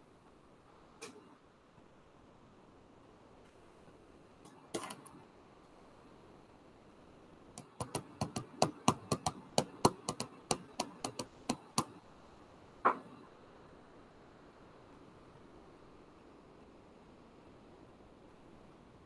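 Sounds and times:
sharp clicks or taps: 7.6s - 12.0s.

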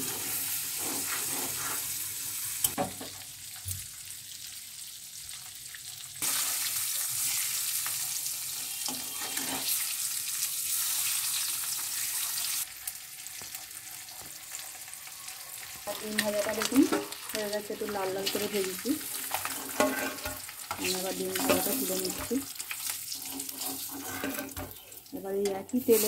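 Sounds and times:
spatula scraping metal pan: 0.0s - 2.0s, 8.7s - 9.8s, 19.1s - 24.8s
eggs sizzling in hot oil: 0.0s - 26.0s.

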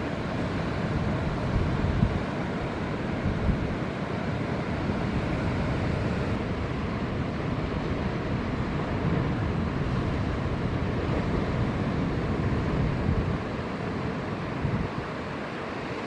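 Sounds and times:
wind on microphone: 0.0s - 2.3s, 3.1s - 3.9s, 7.6s - 15.3s
ocean surf breaking: 0.0s - 16.0s.

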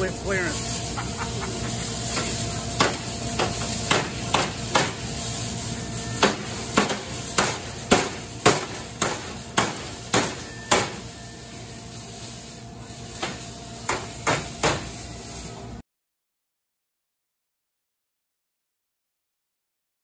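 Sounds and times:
hammer blows on sheet metal: 2.1s - 5.0s, 6.2s - 11.1s, 13.2s - 15.0s.

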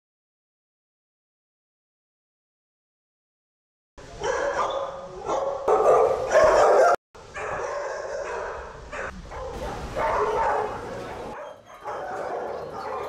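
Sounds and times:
many dogs barking: 4.2s - 13.0s.

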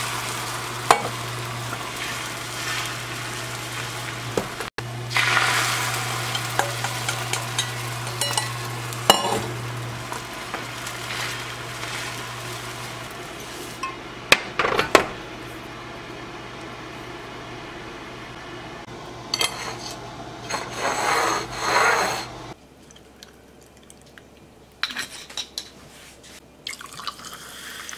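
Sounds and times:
egg sizzling in a pan: 0.0s - 13.9s
chopsticks working egg: 0.6s - 14.0s.

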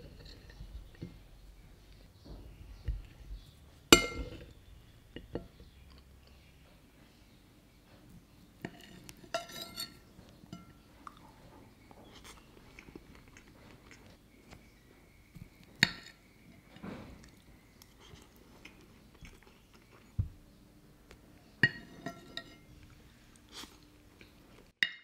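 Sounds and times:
tableware clinking on ceramic plate: 4.0s - 4.5s, 8.7s - 10.8s, 21.6s - 22.7s.

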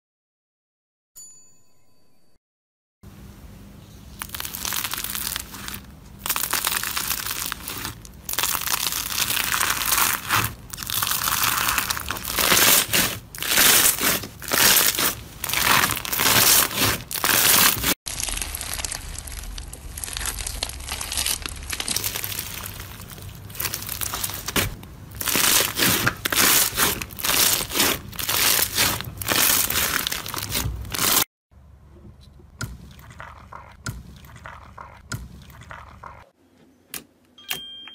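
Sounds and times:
foam-bead slime crunching: 4.1s - 31.3s.

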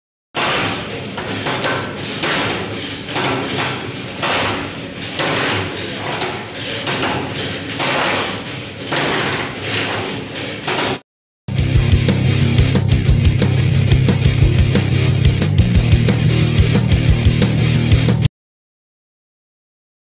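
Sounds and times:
construction clatter with knocks: 0.4s - 11.0s.

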